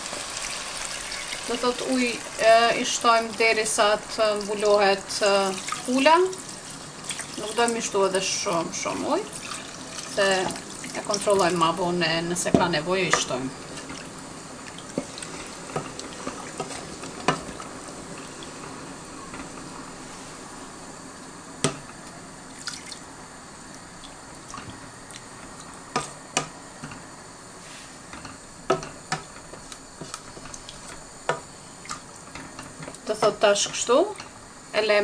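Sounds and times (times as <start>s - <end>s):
liquid hissing in a pot: 0.0s - 34.7s
sharp pops and drips: 12.4s - 18.7s, 21.6s - 23.1s, 28.2s - 34.4s.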